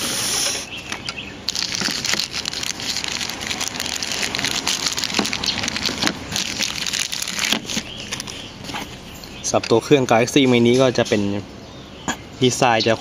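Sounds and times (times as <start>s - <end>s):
plastic bag crinkling: 1.4s - 8.4s.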